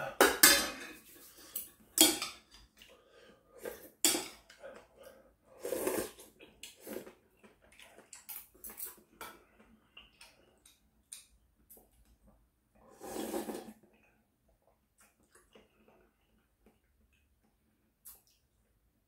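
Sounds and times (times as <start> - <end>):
person slurping noodles: 4.8 - 7.2, 12.8 - 13.8.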